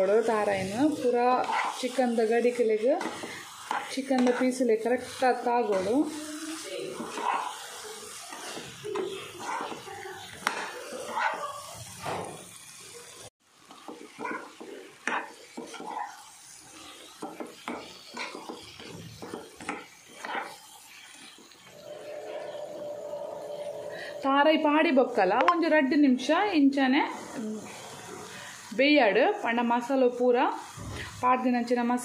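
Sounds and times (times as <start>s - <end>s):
spatula scraping a pan: 0.0s - 12.6s, 13.6s - 24.1s.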